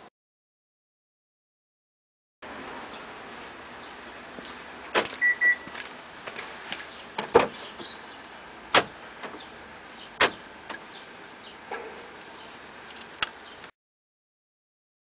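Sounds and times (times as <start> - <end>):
short high beeps: 5.2 - 5.7
car door thump: 7.2 - 7.9, 8.7 - 9.4, 10.2 - 10.8
lock actuators clunking: 10.1 - 11.0.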